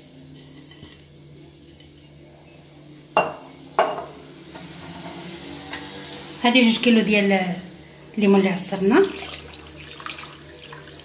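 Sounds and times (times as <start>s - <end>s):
glass bowl clinking on hard surface: 3.2s - 4.2s.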